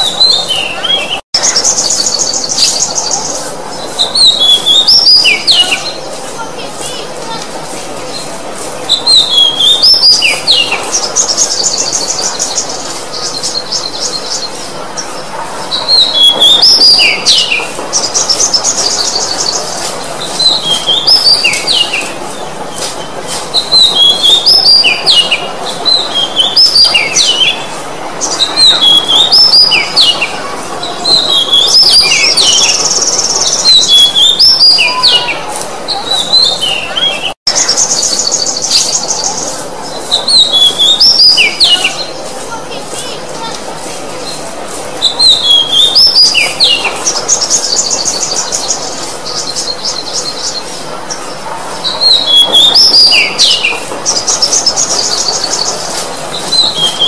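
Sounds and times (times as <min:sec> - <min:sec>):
bird whistling and trilling: 0:04.1 - 0:06.0, 0:08.9 - 0:12.6, 0:40.2 - 0:42.0, 0:45.0 - 0:48.2, 0:52.0 - 0:55.8.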